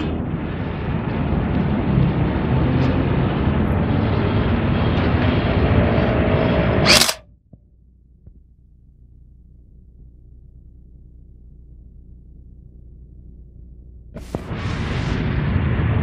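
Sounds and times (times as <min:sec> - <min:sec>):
engine-like rumble with hiss: 0:00.0 - 0:06.9
loud burst: 0:06.8 - 0:07.2, 0:14.2 - 0:16.0.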